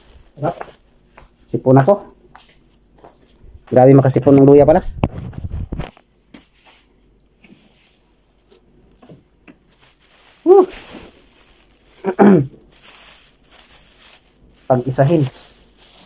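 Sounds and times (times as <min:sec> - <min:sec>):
plastic bag rustling: 0:00.0 - 0:01.2, 0:07.6 - 0:16.0
person sneezing: 0:10.4 - 0:11.1, 0:12.0 - 0:12.6.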